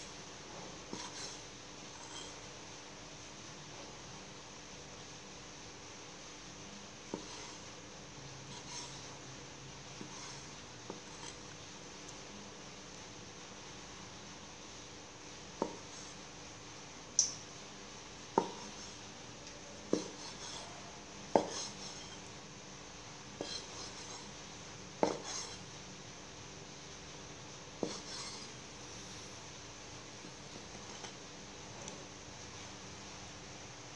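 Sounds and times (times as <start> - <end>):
knife chopping on wooden board: 18.4 - 18.6, 19.9 - 20.2, 21.3 - 21.7, 25.0 - 25.3.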